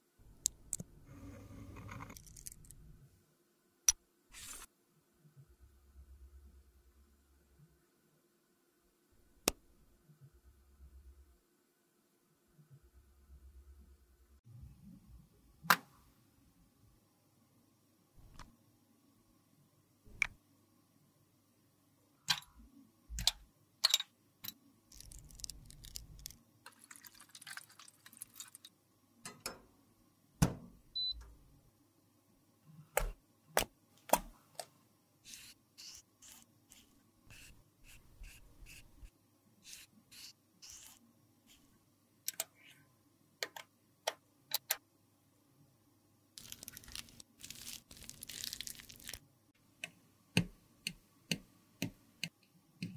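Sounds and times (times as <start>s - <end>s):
metal spatula scraping lipstick: 39.7s - 41.6s.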